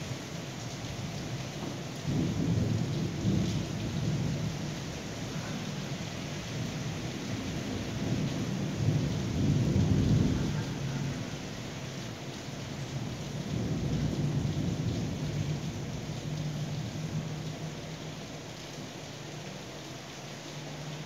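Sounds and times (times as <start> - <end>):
steady rain: 0.0 - 21.0
thunder rumbling: 1.6 - 12.0, 12.9 - 17.8.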